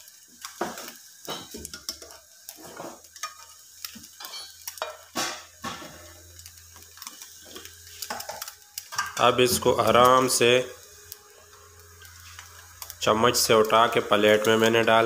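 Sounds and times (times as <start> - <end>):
egg sizzling in oil: 0.0 - 15.0
spatula scraping frying pan: 0.4 - 10.0.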